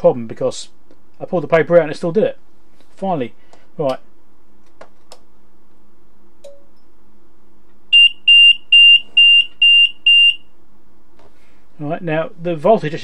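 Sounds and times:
high electronic alarm beeps: 7.9 - 10.5.

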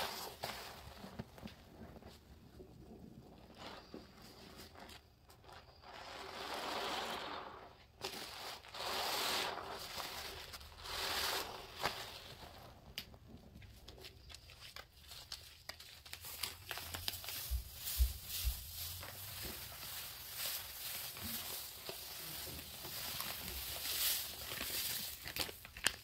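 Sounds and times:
foam crackling and popping: 0.0 - 26.0
powder pouring from bag: 3.2 - 12.9, 16.0 - 26.0
sponge squishing: 3.2 - 12.9, 16.2 - 25.7.

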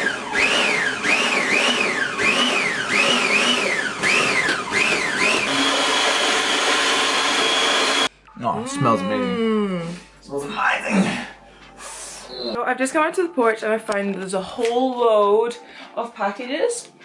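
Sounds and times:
food processor motor whining: 0.0 - 8.1.

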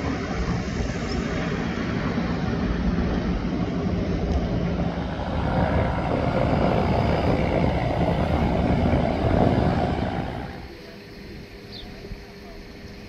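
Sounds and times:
large vehicle rumbling: 0.0 - 10.7
faint whine: 0.0 - 13.0.

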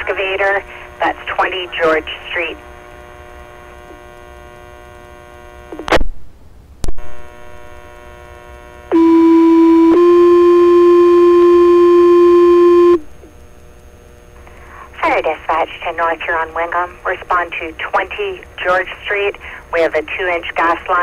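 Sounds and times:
radio channel hum: 0.0 - 6.1, 6.8 - 21.0
two-tone paging tones: 8.9 - 13.0.

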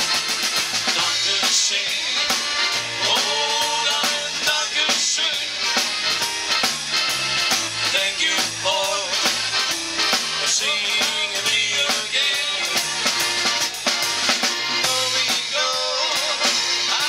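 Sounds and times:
accordion: 0.0 - 17.0
drum kit beat: 0.0 - 17.0
electric bass: 0.0 - 17.0
electric guitar: 0.0 - 17.0.

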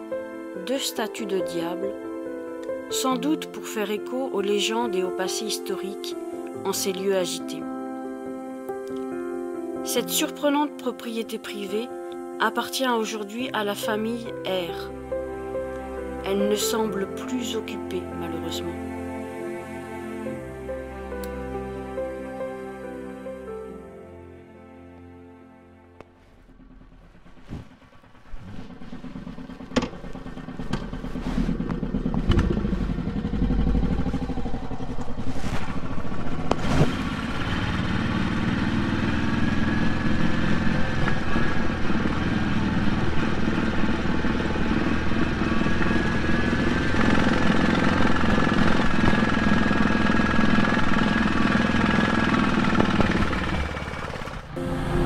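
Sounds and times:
motorcycle engine pulling away: 26.1 - 55.0.

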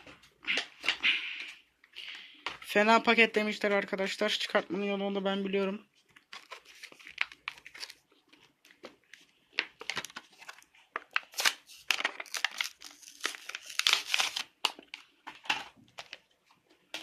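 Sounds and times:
plastic blister pack crinkling: 6.0 - 17.0.

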